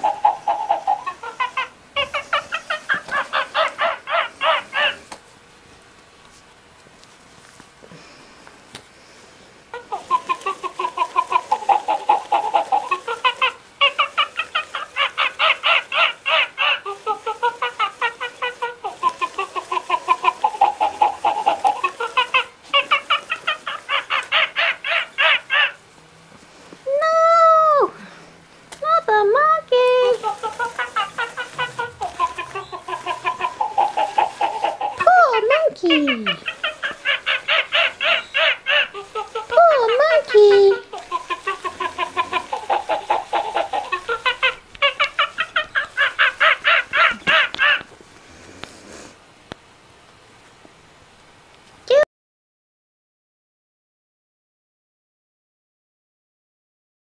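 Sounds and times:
toy monkey electronic chattering: 0.0s - 5.0s, 9.8s - 25.8s, 29.8s - 47.9s.

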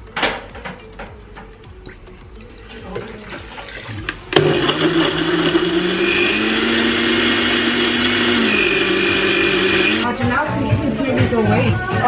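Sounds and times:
blender motor running: 4.3s - 10.0s.

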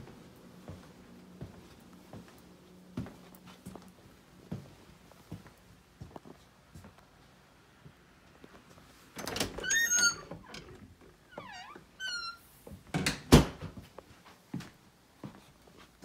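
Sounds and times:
closet door scraping: 9.2s - 12.5s
high squeaks from door hinges: 9.2s - 12.5s.

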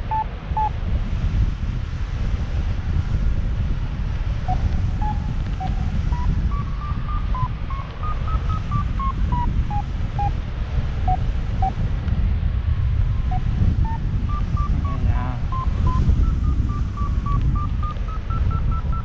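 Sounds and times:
variometer beeping: 0.0s - 0.7s, 4.5s - 10.4s, 11.0s - 11.8s, 13.2s - 19.0s
wind rushing over microphone: 0.0s - 19.0s.

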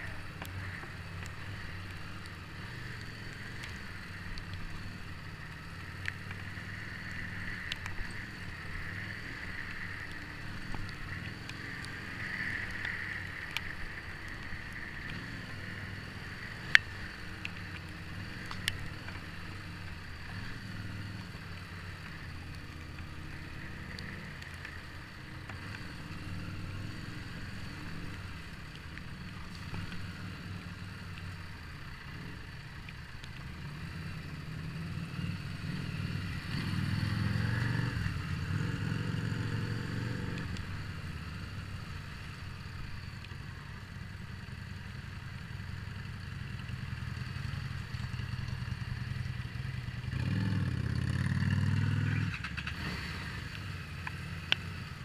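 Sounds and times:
wind and road hiss: 0.0s - 55.0s
motorcycle engine running: 33.4s - 55.0s.

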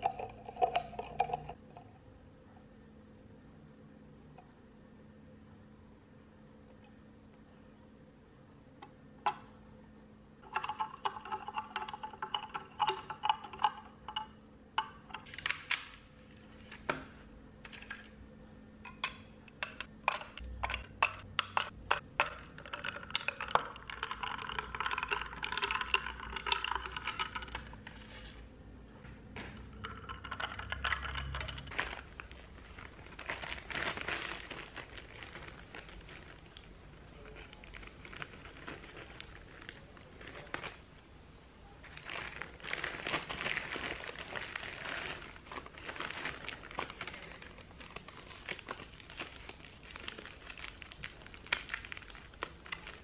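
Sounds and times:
milk pouring into a glass: 22.2s - 27.6s.

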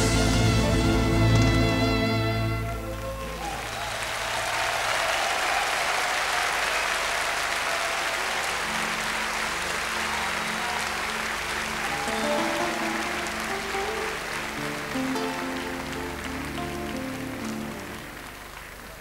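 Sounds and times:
band playing: 0.0s - 4.4s, 8.5s - 19.0s
audience applauding: 0.0s - 19.0s.

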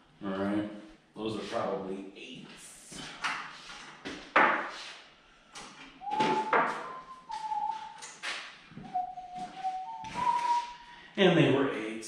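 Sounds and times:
person whistling a held note: 6.0s - 11.0s.

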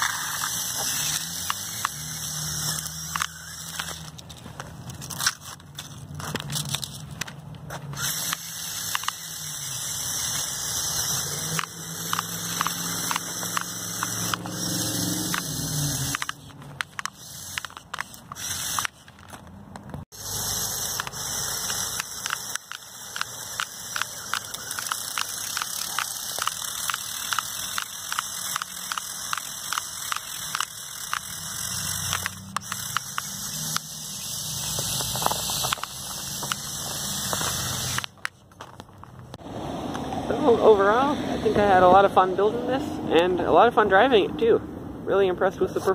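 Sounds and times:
toy motors whining: 0.0s - 7.3s, 7.9s - 19.4s, 20.1s - 38.8s
small crackling clicks: 21.0s - 33.9s.

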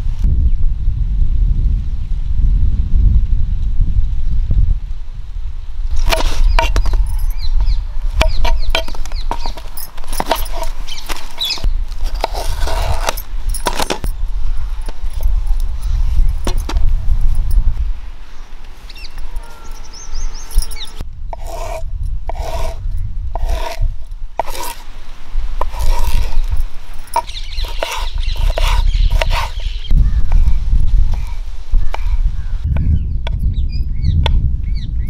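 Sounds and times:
knife scraping gourd: 5.9s - 17.7s, 19.0s - 32.3s.

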